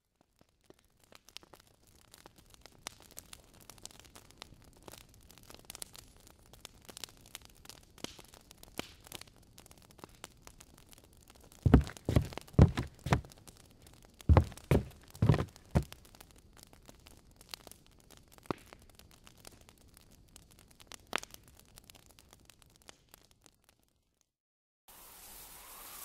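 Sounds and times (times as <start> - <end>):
dull heavy thumps: 11.7 - 13.3, 14.3 - 15.9.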